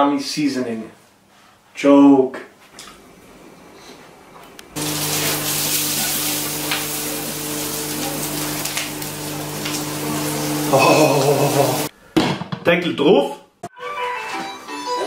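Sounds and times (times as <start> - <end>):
vegetables sizzling in a pan: 4.8 - 11.9.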